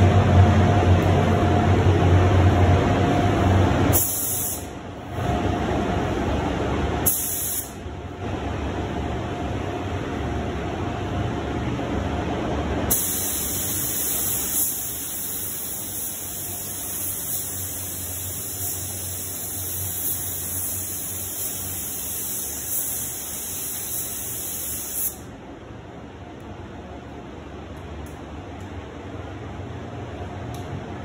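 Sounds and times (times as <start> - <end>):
low background hum: 0.0 - 31.0
paint spray gun hissing: 7.0 - 7.8, 12.9 - 25.2.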